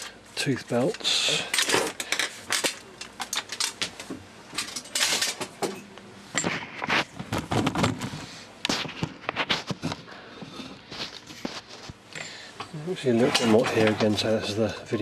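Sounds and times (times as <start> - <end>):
metal parts clinking on workbench: 4.6 - 5.8.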